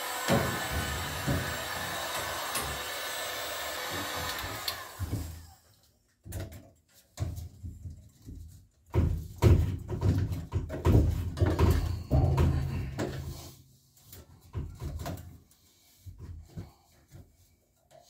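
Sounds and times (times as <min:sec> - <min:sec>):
heat gun blowing: 0:00.0 - 0:05.6
pipe thumps and scrapes: 0:00.2 - 0:02.9, 0:06.2 - 0:18.0.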